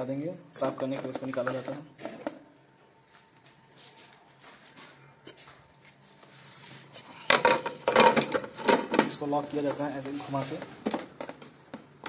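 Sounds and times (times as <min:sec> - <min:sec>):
plastic knocks and rattles: 0:07.3 - 0:09.2, 0:10.0 - 0:12.0.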